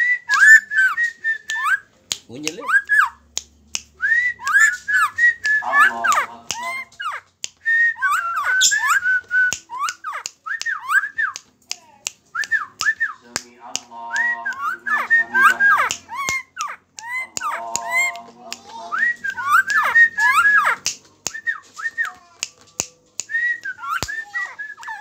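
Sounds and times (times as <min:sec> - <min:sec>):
person whistling: 0:04.0 - 0:11.4, 0:14.1 - 0:18.2, 0:18.9 - 0:22.2, 0:23.2 - 0:25.0.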